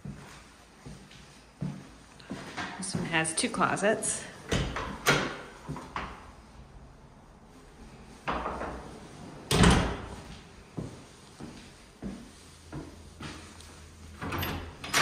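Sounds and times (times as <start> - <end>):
wooden closet doors being handled: 4.4 - 6.3, 8.2 - 10.2.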